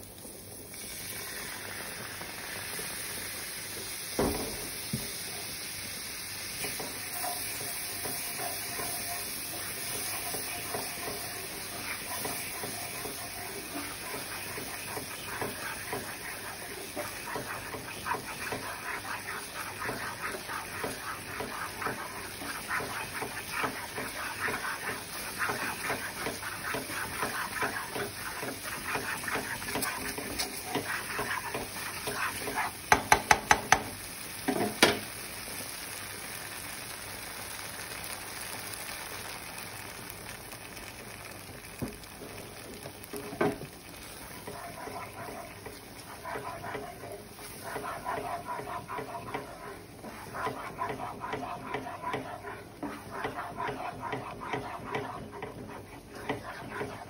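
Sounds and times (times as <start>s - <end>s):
milk sizzling and bubbling in pan: 0.0s - 57.0s
spatula stirring and scraping sauce: 6.6s - 33.9s, 41.7s - 57.0s.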